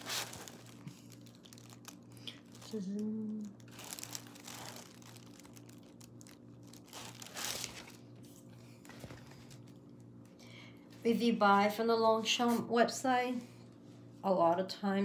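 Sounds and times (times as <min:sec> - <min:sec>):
nylon fabric rustling: 0:00.0 - 0:00.9, 0:03.7 - 0:08.0.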